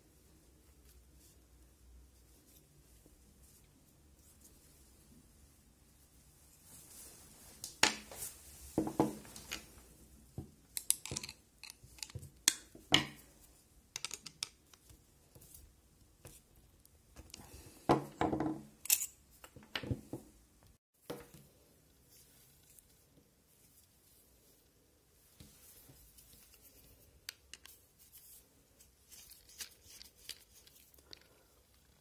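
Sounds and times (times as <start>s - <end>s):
small metal parts clinking: 10.8s - 12.2s, 18.8s - 19.2s.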